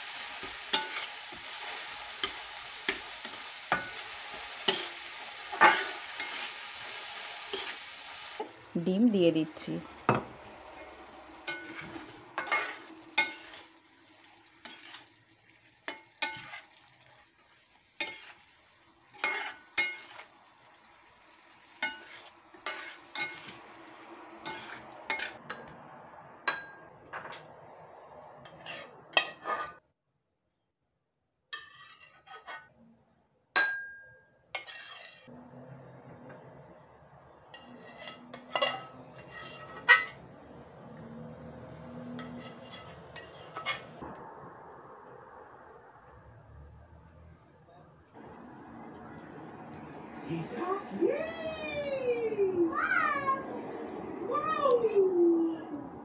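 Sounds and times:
spatula scraping frying pan: 0.0s - 8.4s, 10.6s - 20.3s, 21.2s - 25.7s, 28.4s - 29.8s, 31.5s - 32.8s, 34.6s - 35.3s, 37.5s - 40.2s, 42.1s - 44.0s
food sizzling: 0.0s - 27.5s, 37.5s - 40.3s, 41.0s - 46.7s, 48.2s - 54.7s.

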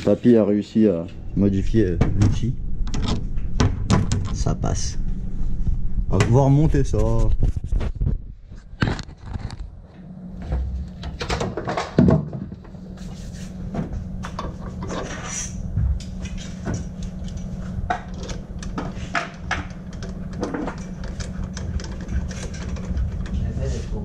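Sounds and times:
steady low hum: 0.0s - 24.0s
metal parts clicking and knocking: 17.0s - 23.4s.

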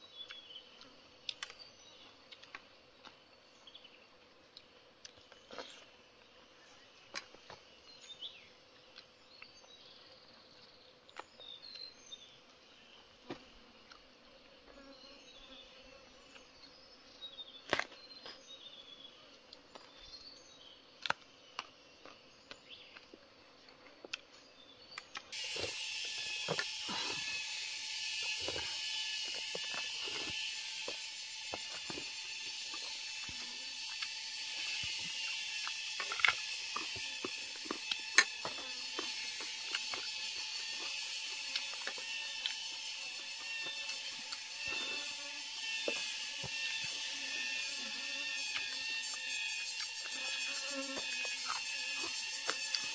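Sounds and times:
insects chirping and buzzing: 0.0s - 52.9s
high-pitched insect chorus: 25.4s - 52.9s.

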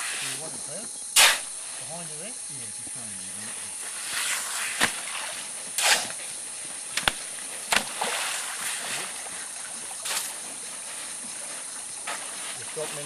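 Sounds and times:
shovel digging wet sand: 1.2s - 1.9s, 3.9s - 6.3s, 7.0s - 9.2s
water splashing and sloshing: 3.4s - 13.0s
sharp knocks: 6.9s - 8.0s.

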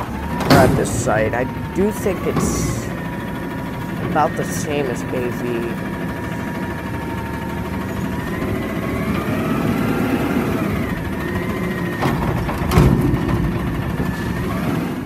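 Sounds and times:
garbage truck diesel engine: 0.0s - 15.0s
rising and falling whine: 0.0s - 15.0s
sharp knocks: 11.4s - 14.7s.

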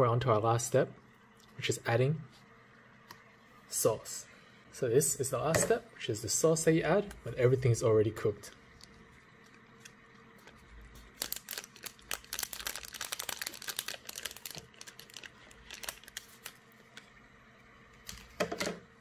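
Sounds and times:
foil sachet crinkling: 9.4s - 16.8s.

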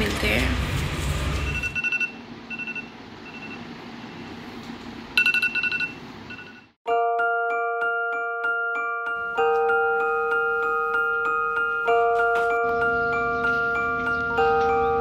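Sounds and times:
smartphone alarm beeping: 1.5s - 4.3s, 5.2s - 6.7s
glockenspiel-like background music: 6.9s - 15.0s.

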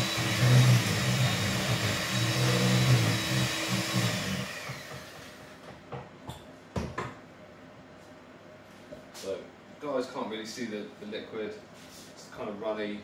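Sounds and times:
electric hand mixer whisking batter: 0.0s - 5.5s.

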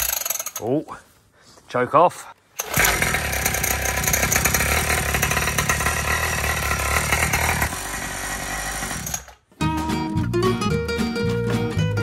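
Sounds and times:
two-stroke engine running: 2.6s - 9.3s.

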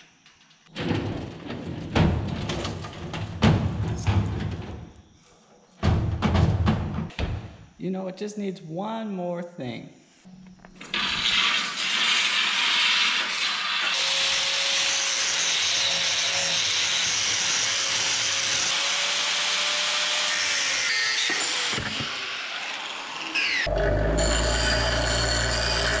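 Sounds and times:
angle grinder grinding steel: 10.9s - 26.0s.

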